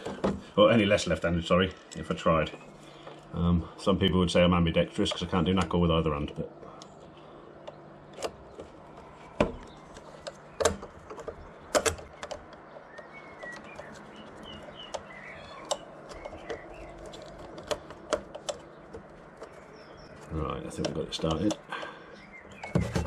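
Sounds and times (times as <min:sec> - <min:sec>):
small clicks and knocks of screwing: 0:06.6 - 0:23.0
faint bird chirps: 0:12.1 - 0:17.4.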